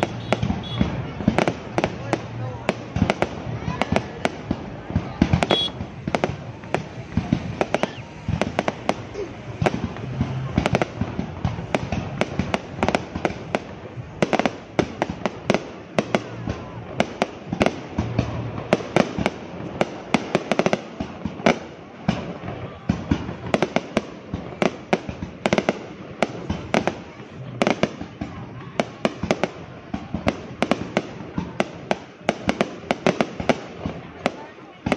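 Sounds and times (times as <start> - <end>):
fireworks bangs and crackles: 0.0 - 34.9.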